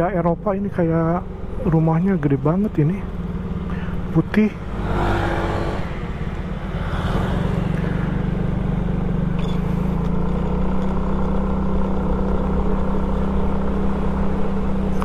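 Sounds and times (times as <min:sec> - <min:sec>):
wind and road noise: 0:00.0 - 0:15.0
scooter engine running: 0:02.5 - 0:04.8, 0:05.6 - 0:15.0.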